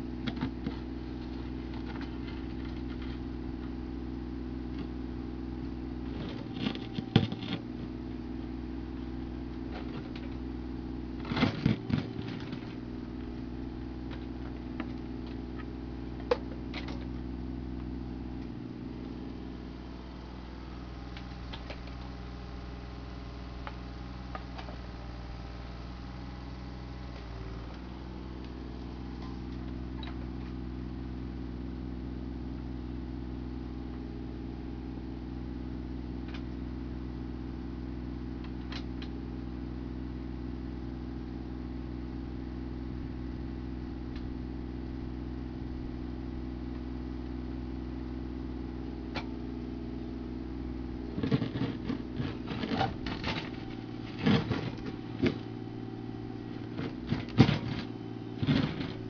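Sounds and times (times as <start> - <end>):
excavator diesel engine running: 0.0 - 31.7, 48.6 - 59.0
bucket knocking and scraping dirt: 0.2 - 3.2, 6.1 - 7.8, 9.7 - 10.4, 11.2 - 12.9, 51.1 - 55.7, 56.5 - 59.0.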